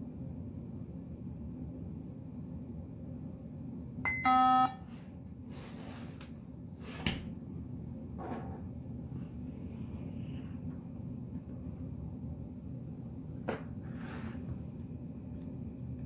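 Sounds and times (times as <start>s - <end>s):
steady low hum: 0.0s - 16.0s
loud buzzy electronic beep: 4.1s - 4.8s.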